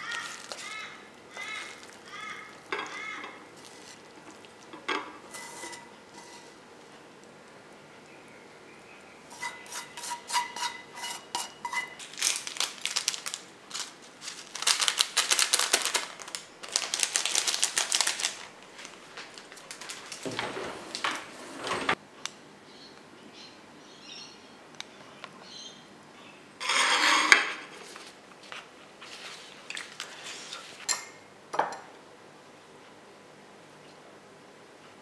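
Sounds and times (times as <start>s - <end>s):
plastic packet crinkling: 0.0s - 2.6s, 12.0s - 20.3s.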